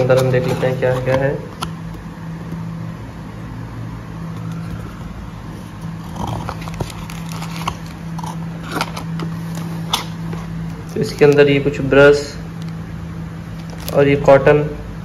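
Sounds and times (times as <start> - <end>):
steady low hum: 0.0 - 15.0
plastic bag crinkling: 6.4 - 10.2, 13.6 - 14.0.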